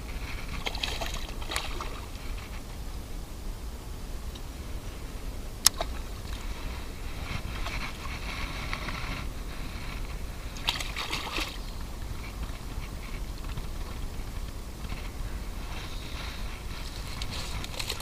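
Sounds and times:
fish splashing in water: 0.4s - 2.5s, 10.5s - 14.0s.

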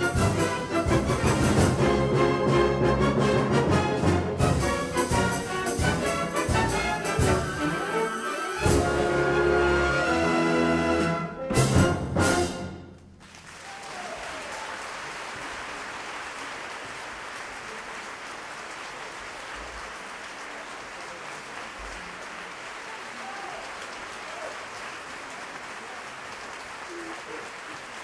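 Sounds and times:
audience applause: 13.2s - 28.0s.

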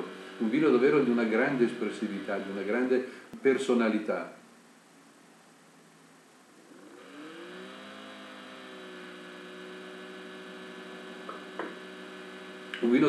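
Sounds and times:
low steady hum: 0.0s - 7.1s.

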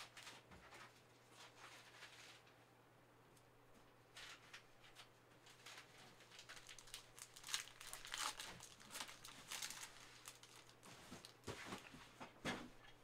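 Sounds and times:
wrapper tearing and crinkling: 5.7s - 11.4s.

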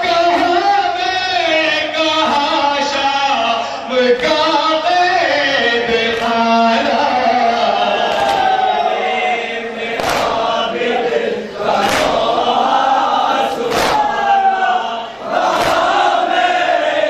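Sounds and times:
crowd of men chanting: 0.0s - 17.0s
hands slapping chests: 8.0s - 8.7s, 9.9s - 10.6s, 11.7s - 12.5s, 13.5s - 14.4s, 15.4s - 16.1s.

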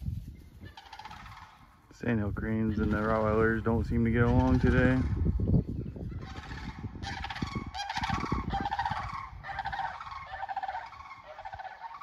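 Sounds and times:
cranes rattling calls: 0.6s - 1.9s, 2.7s - 3.5s, 6.1s - 12.0s.

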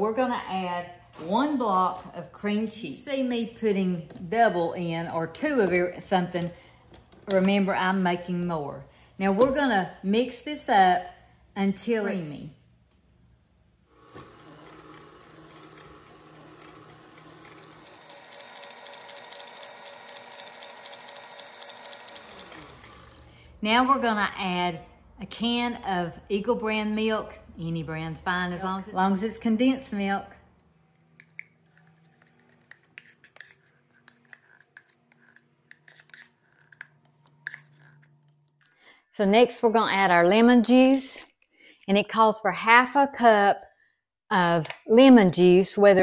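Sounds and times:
stand mixer whisking: 14.0s - 23.3s
metal spoon scraping tin can: 31.7s - 38.2s.

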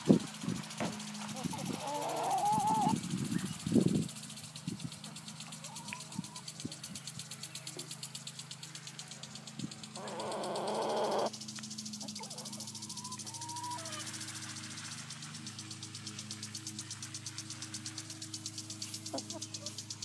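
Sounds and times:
fast high ticking: 0.0s - 20.0s
steady low hum: 0.0s - 20.0s
hens clucking softly: 1.2s - 3.5s, 5.0s - 6.9s, 9.9s - 11.3s, 12.0s - 14.2s, 18.8s - 19.9s.

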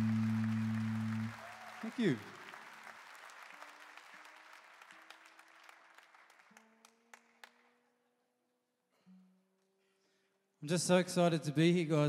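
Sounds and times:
acoustic guitar strings plucked: 0.0s - 1.3s
faint applause: 0.0s - 7.8s.

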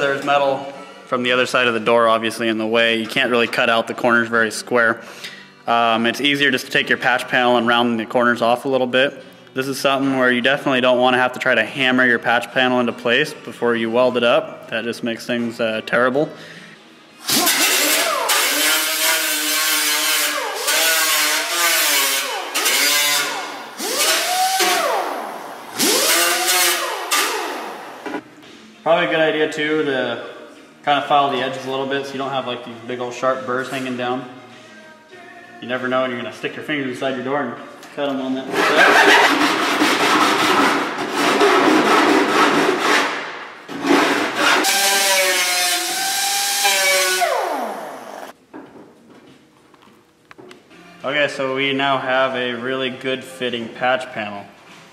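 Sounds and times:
angle grinder whining: 17.3s - 28.2s, 44.6s - 48.3s.

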